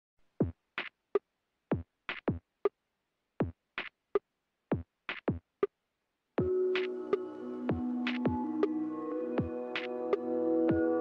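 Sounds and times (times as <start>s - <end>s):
electronic drum beat: 6.4s - 11.0s.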